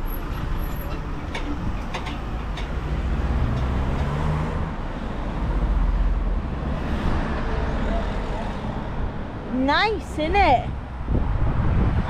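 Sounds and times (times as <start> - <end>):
wind buffeting microphone: 10.5 - 12.0.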